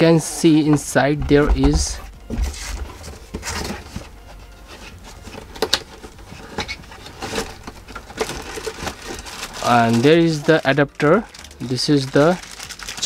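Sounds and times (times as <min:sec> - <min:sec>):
handling rumble: 0:00.7 - 0:02.2
plastic bag crinkling: 0:06.8 - 0:13.0.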